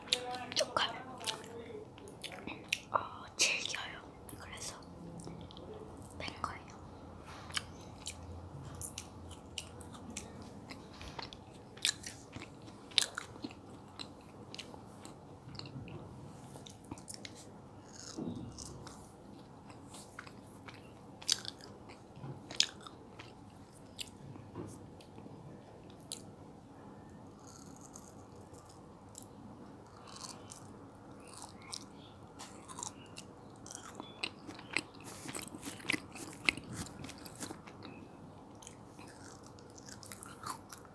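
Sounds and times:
biting and chewing: 7.5 - 16.0, 16.6 - 24.2, 27.4 - 40.9.

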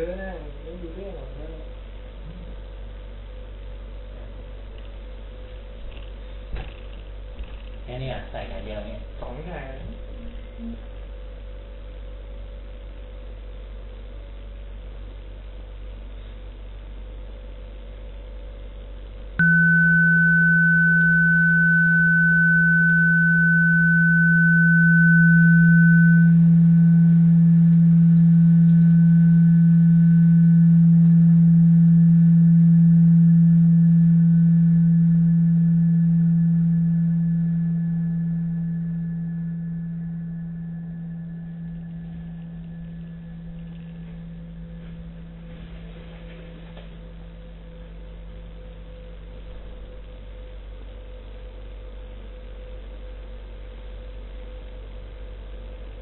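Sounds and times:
thin high electronic tone: 19.4 - 45.7
loud low electronic drone: 19.4 - 50.7.

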